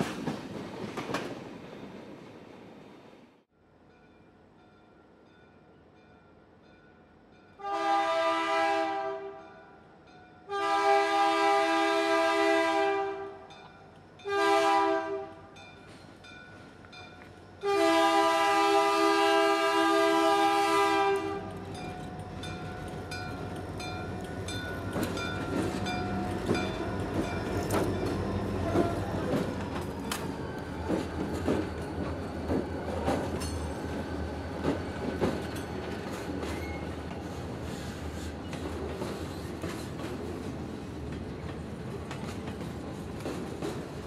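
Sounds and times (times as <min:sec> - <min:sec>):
locomotive air horn blasts: 0:07.6 - 0:09.4, 0:10.5 - 0:13.5, 0:14.3 - 0:15.5, 0:17.6 - 0:21.6
locomotive engines rumbling: 0:15.8 - 0:44.0
train wheels clacking on rails: 0:21.1 - 0:44.0.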